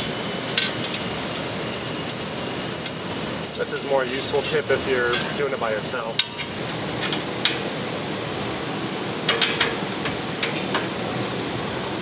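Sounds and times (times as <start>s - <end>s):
room noise hiss: 0.0s - 12.0s.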